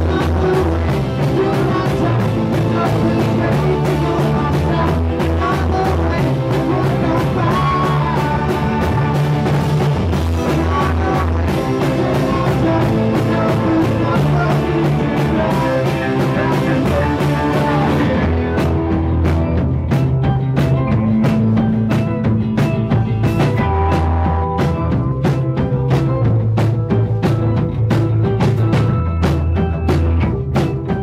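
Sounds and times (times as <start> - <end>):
man singing: 0.0 - 19.6
rock band playing: 0.0 - 31.0.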